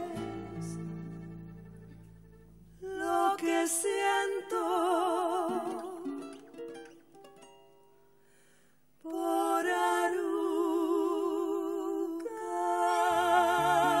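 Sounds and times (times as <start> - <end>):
women singing wordless notes: 0.0 - 0.9, 2.8 - 6.4, 9.0 - 14.0.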